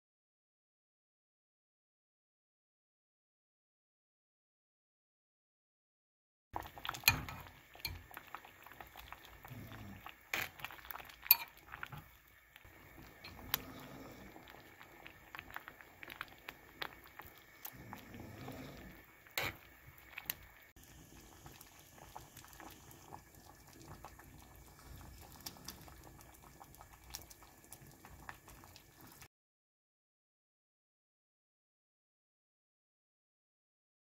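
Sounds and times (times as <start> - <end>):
stew bubbling in a pot: 6.6 - 29.3.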